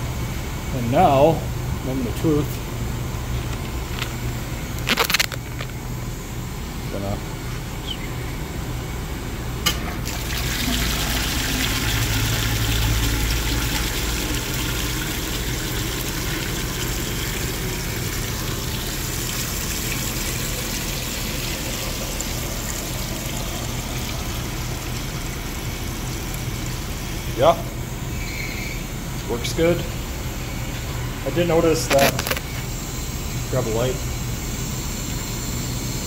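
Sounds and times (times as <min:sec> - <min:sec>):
low equipment hum: 0:00.0 - 0:36.0
water rushing into tank: 0:09.7 - 0:27.8.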